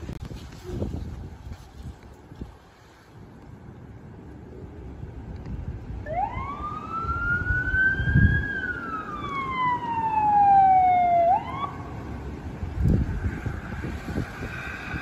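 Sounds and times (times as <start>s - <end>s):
ambulance siren wailing: 6.0s - 12.1s.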